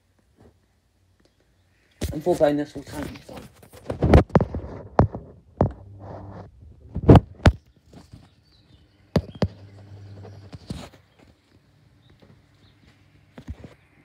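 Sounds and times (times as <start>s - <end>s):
fan motor humming: 5.6s - 7.2s, 8.7s - 13.8s.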